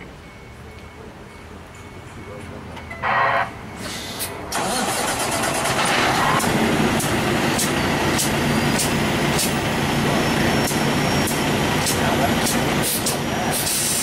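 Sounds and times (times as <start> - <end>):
large diesel engine running: 3.6 - 14.0.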